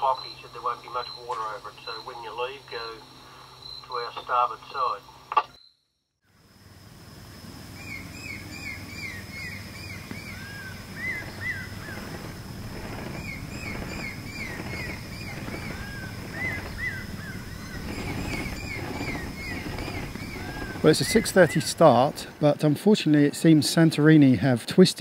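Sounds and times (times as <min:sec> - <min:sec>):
birds chirping: 0:00.0 - 0:05.8, 0:06.9 - 0:23.8
steady high whine: 0:00.0 - 0:24.4
low steady hum: 0:06.3 - 0:23.5.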